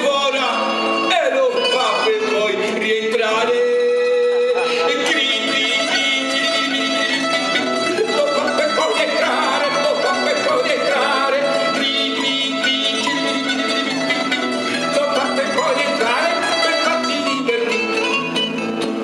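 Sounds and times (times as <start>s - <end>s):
guitar plucked and strummed: 0.0s - 19.0s.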